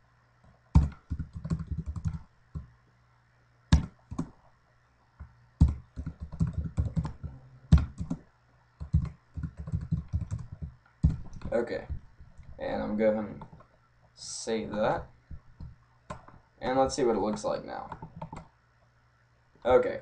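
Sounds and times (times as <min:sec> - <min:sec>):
typing on keyboard: 0:00.8 - 0:02.7, 0:05.6 - 0:08.2, 0:08.8 - 0:12.0, 0:17.3 - 0:18.5.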